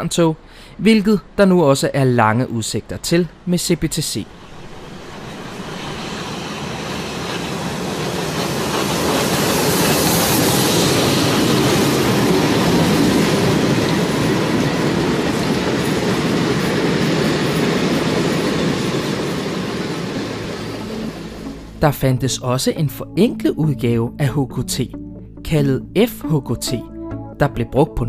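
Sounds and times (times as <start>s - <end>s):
train wheels on rails: 4.3s - 21.8s.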